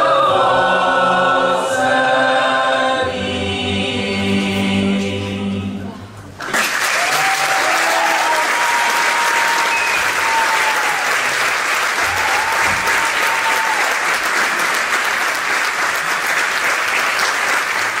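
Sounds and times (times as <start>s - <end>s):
audience applauding: 6.4s - 18.0s
long whistles: 9.5s - 10.6s.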